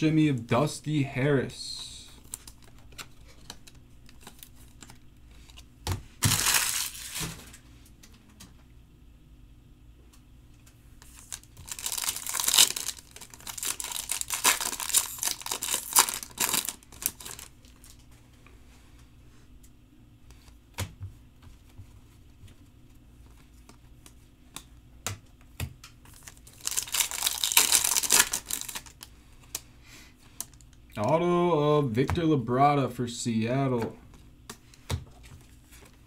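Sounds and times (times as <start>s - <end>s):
foil wrapper tearing and crinkling: 6.2s - 7.4s, 11.0s - 18.0s, 26.1s - 29.1s.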